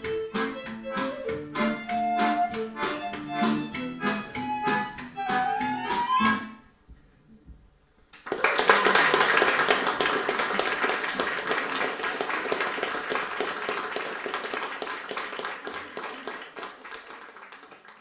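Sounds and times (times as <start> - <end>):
audience applauding: 8.2 - 18.0.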